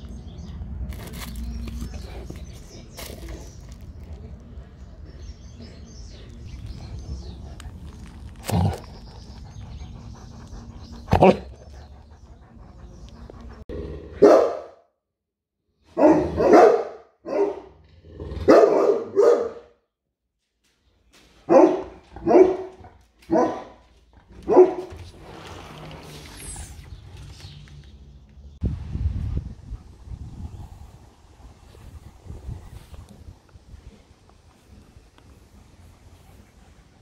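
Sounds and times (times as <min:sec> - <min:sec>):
dog barking deeply: 0:11.0 - 0:11.7, 0:13.7 - 0:14.8, 0:15.9 - 0:19.8, 0:21.5 - 0:25.0.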